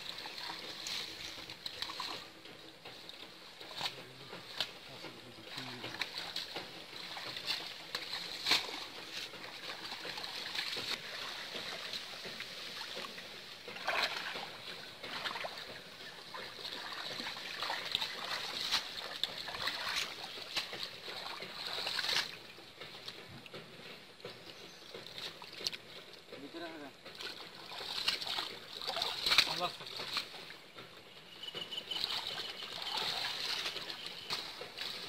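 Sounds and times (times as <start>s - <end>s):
pond water splashing: 0.0s - 35.0s.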